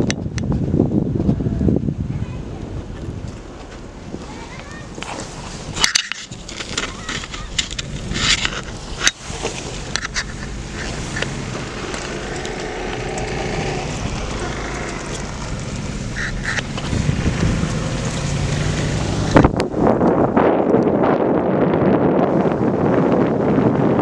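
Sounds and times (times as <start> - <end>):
wind across microphone: 0.0 - 24.0
car engine and tyre noise: 2.6 - 24.0.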